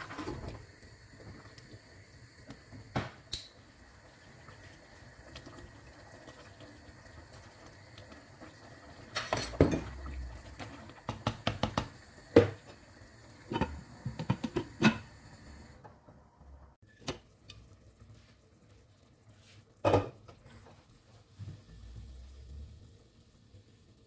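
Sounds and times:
water pouring into pot: 0.0 - 15.8.

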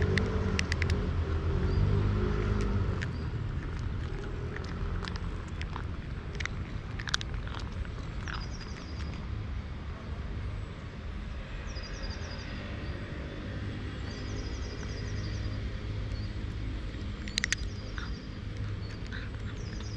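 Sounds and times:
sharp clicks: 0.0 - 1.0, 16.0 - 19.9
steady low rumble: 0.0 - 19.9
small bird chirping: 1.7 - 9.3, 14.0 - 19.9.

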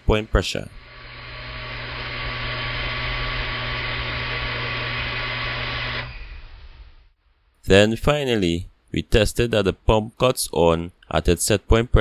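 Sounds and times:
electric water pump running: 0.0 - 7.1.

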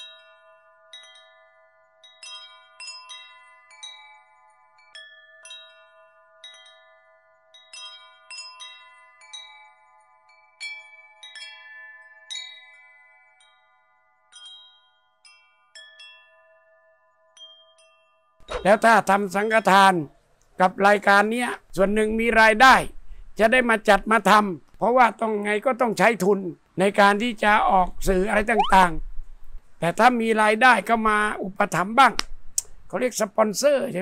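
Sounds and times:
wind chimes ringing: 0.0 - 19.8.

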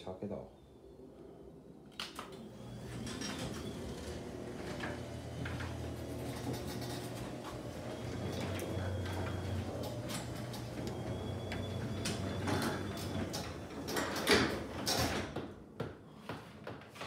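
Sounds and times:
garage door motor humming: 2.1 - 15.6
door rattling on metal tracks: 2.8 - 15.4.

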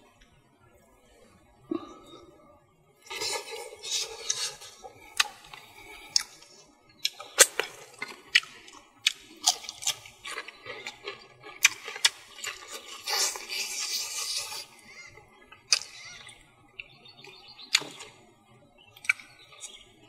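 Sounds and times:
man chewing with lip smacks: 3.0 - 18.2, 19.0 - 19.9.

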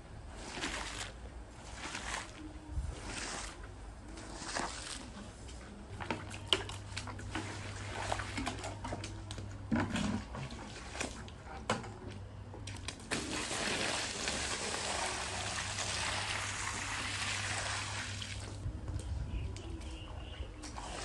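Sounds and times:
water pouring onto rug: 0.3 - 3.6, 4.2 - 5.1, 6.9 - 8.7, 12.8 - 18.6.

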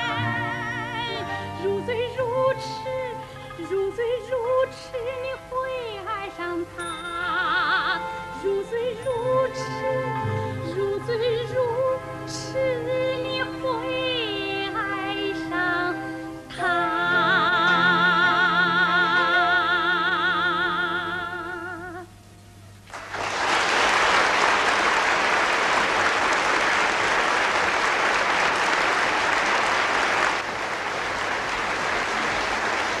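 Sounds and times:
woman singing with vibrato: 0.0 - 22.2
audience applause: 22.9 - 33.0.

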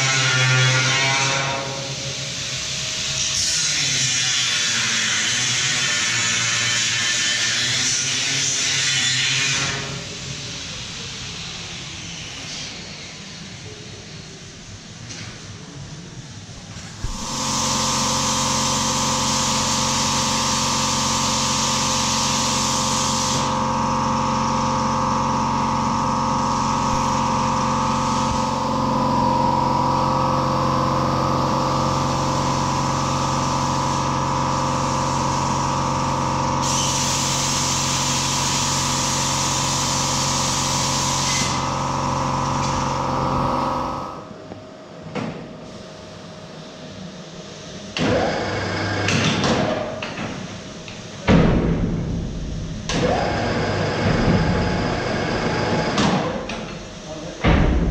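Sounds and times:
grinding hiss on steel: 0.0 - 14.2, 36.6 - 41.9
angle grinder motor whine: 17.1 - 31.7.

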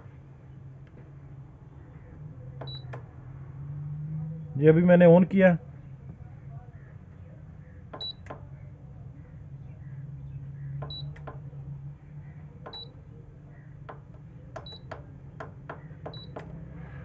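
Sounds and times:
low steady hum: 0.0 - 4.6
short high beeps: 2.6 - 2.9
button clicks: 2.6 - 3.0, 8.0 - 8.4, 10.8 - 11.4, 12.7 - 13.0.

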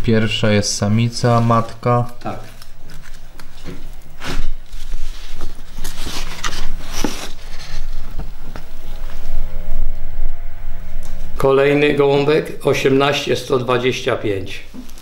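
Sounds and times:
steady low hum: 0.0 - 15.0
paper rustling: 1.2 - 9.0.

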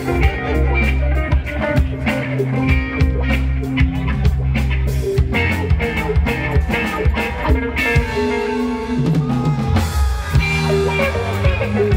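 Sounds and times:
bass line: 0.0 - 11.9
drums: 0.0 - 11.9
electric guitars: 0.0 - 11.9.

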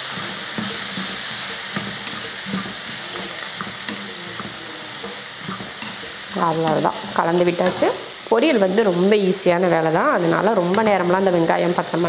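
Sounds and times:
spatula scraping and tapping pan: 0.0 - 8.0
vegetables sizzling in oil: 0.0 - 12.0.

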